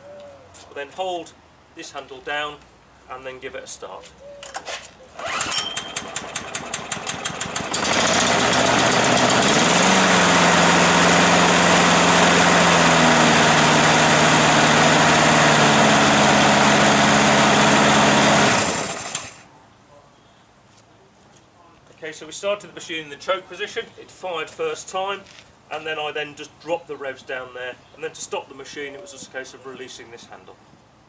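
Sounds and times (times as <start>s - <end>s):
lawn mower engine running: 5.2s - 19.4s.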